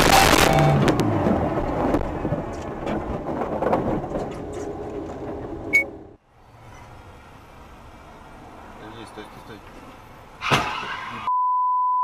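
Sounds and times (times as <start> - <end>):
knocks and rattles: 0.8 - 5.7.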